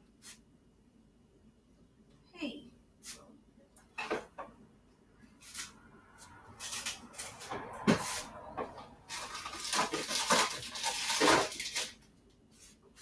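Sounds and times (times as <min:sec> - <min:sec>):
containers clattering in refrigerator: 0:08.6 - 0:12.0.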